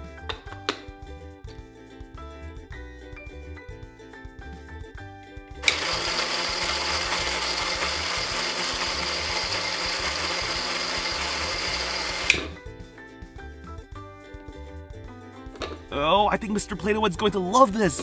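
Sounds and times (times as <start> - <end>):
background music: 0.0 - 18.0
toy blender switch click: 5.6 - 12.6
toy blender whirring: 5.6 - 12.6.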